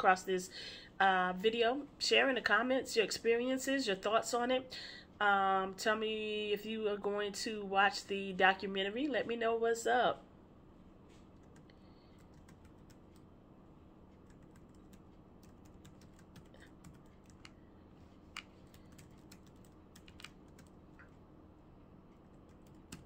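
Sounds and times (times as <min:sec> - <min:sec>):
low room hum: 0:00.0 - 0:23.0
keyboard typing clicks: 0:14.2 - 0:17.6, 0:18.3 - 0:21.2.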